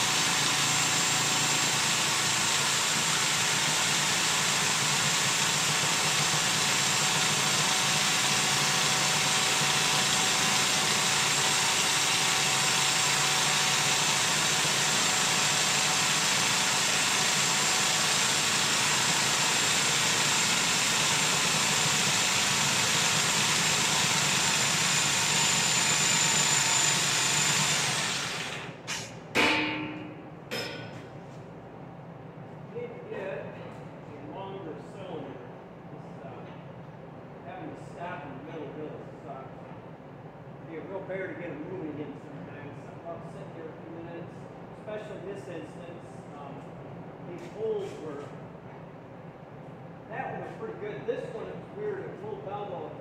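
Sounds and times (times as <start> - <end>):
sharp knocks: 29.3 - 31.0.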